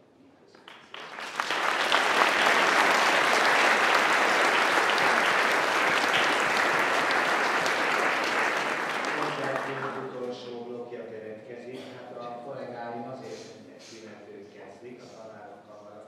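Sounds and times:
audience applauding: 0.6 - 10.1.

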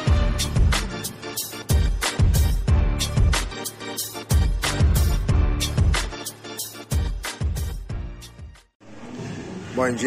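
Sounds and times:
intro music with heavy beat: 0.0 - 8.8.

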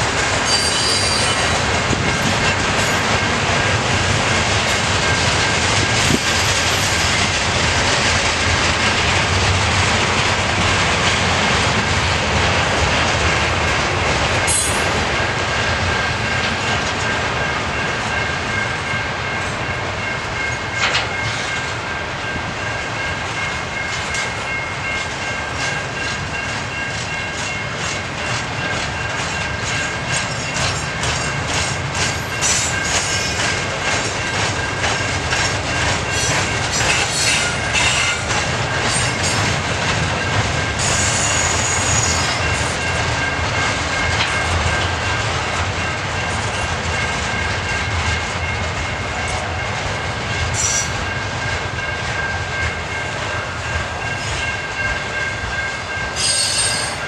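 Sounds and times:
freight train rumble and rattle: 0.0 - 57.0
high wheel squeal: 0.4 - 1.6, 36.2 - 38.2, 40.8 - 42.6, 56.2 - 57.0.

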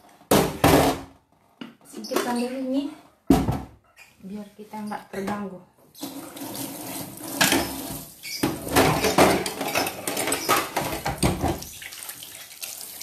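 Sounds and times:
metal kitchenware clattering: 6.9 - 11.6
knocks and scrapes of kitchenware: 7.4 - 11.6.

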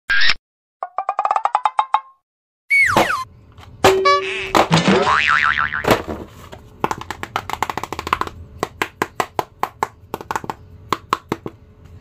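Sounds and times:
fingers tapping plastic mask: 6.8 - 11.6.

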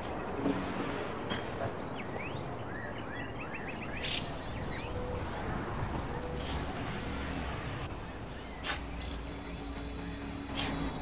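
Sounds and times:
steady outdoor hiss: 0.0 - 11.0
small birds chirping: 1.9 - 11.0.

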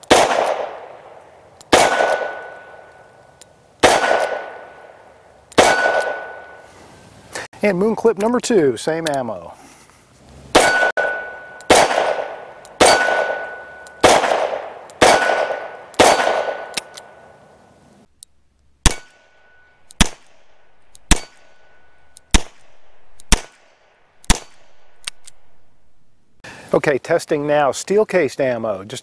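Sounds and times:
revolver shots: 5.6 - 6.5
steel targets ringing: 5.6 - 6.6, 10.6 - 12.0, 12.8 - 14.1.

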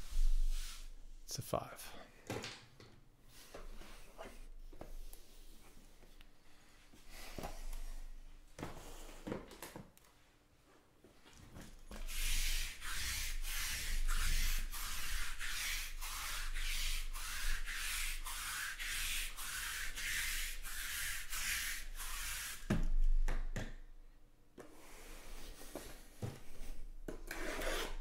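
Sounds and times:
lint roller rasping on felt: 11.9 - 22.7.

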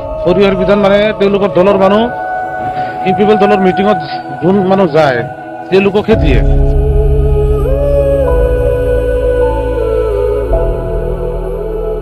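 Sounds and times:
calm music with sustained chords: 0.0 - 12.0
low bass: 6.1 - 12.0.

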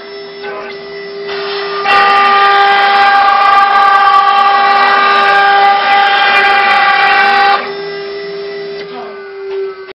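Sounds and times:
high-pitched spindle whine: 0.8 - 9.9
router cutting noise: 1.2 - 8.1.

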